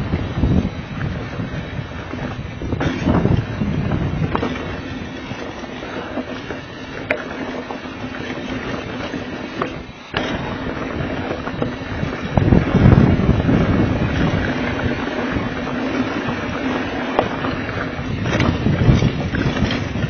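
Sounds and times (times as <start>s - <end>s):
bike tyres rattling on dirt: 0.0s - 20.0s
wind buffeting microphone: 0.0s - 20.0s
sharp knocks from trail impacts: 2.7s - 3.5s.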